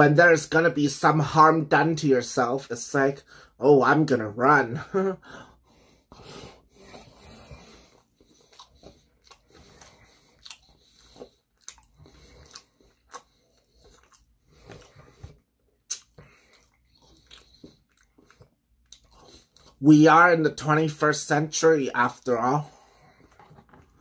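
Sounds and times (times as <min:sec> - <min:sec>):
man chewing food: 0:04.9 - 0:19.8, 0:22.0 - 0:24.0
wet mouth clicks: 0:15.8 - 0:19.7.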